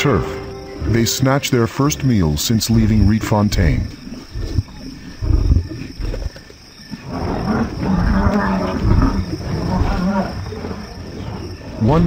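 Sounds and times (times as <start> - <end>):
lion growling: 2.0 - 12.0.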